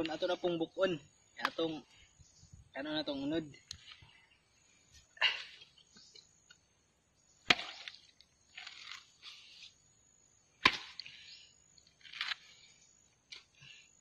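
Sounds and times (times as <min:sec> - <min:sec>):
machete chopping coconut: 0:07.4 - 0:07.9, 0:10.6 - 0:11.0.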